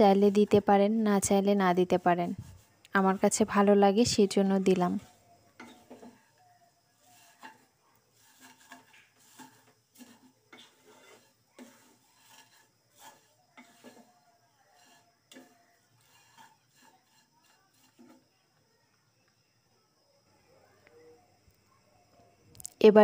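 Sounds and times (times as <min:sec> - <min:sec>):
food frying in ghee: 0:00.0 - 0:18.3
wooden spatula scraping in pan: 0:00.0 - 0:18.4.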